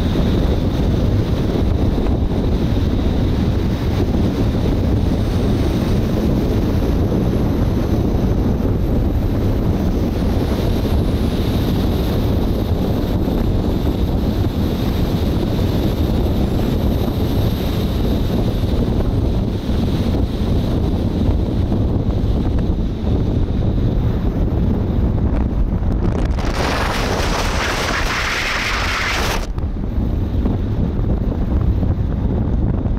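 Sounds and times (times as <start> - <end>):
wind buffeting microphone: 0.0 - 32.9
car road noise: 24.8 - 31.7.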